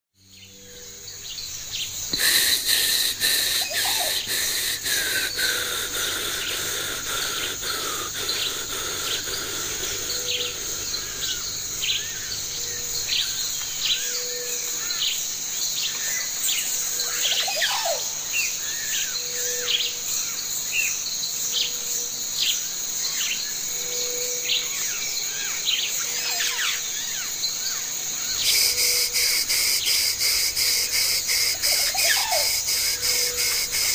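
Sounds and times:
insect chorus: 0.2 - 33.9
birds chirping: 0.4 - 19.4, 24.6 - 33.9.

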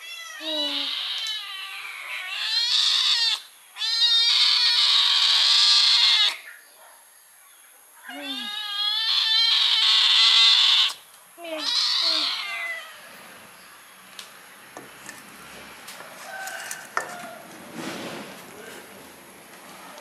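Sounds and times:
kittens meowing: 0.0 - 6.4, 8.0 - 13.1.

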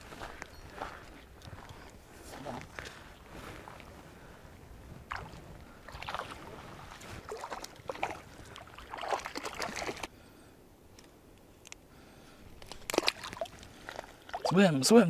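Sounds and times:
water splashing and sloshing: 5.0 - 10.1, 12.6 - 14.8.

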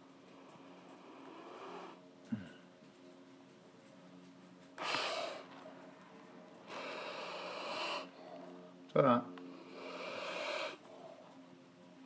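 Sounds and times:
lizard hissing: 1.0 - 2.0, 4.8 - 5.5, 6.6 - 8.2, 9.5 - 10.8.

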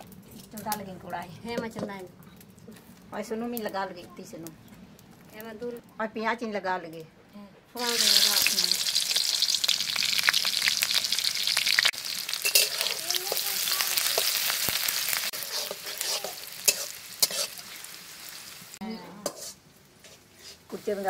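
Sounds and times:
onions sizzling in hot oil: 7.8 - 21.0
metal spatula scraping a pan: 12.3 - 17.9, 19.2 - 21.0.

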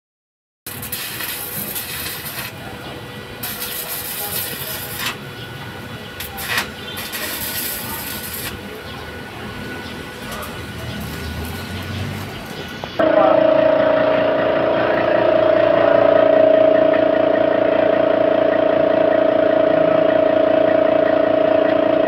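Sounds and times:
welding arc crackling and hissing: 0.7 - 5.3, 6.1 - 8.8, 10.1 - 12.8.

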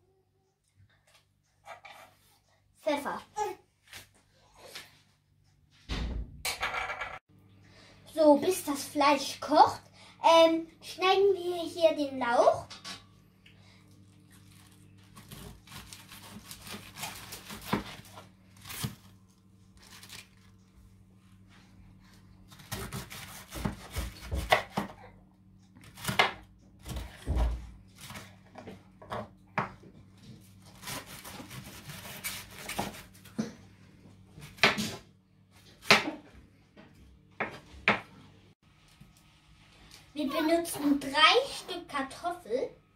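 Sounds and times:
knife slicing cabbage: 22.5 - 25.0, 30.6 - 33.3.

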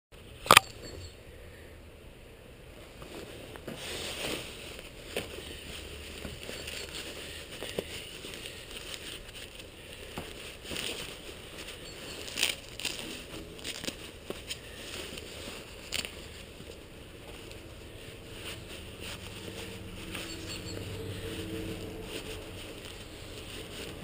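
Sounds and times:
sharp click: 0.4 - 0.7
faint rustling and crackling: 2.7 - 24.0.

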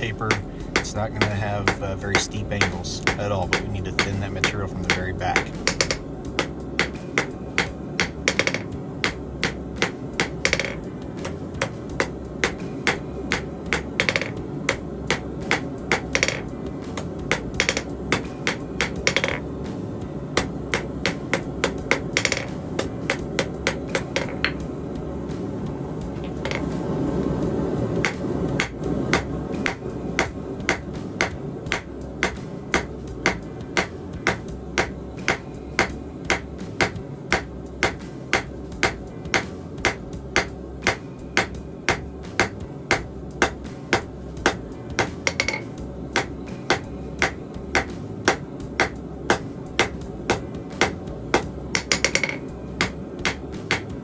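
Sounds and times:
hammer striking steel on anvil: 0.0 - 19.5, 20.3 - 24.6, 28.0 - 54.0
low background noise: 0.0 - 54.0.

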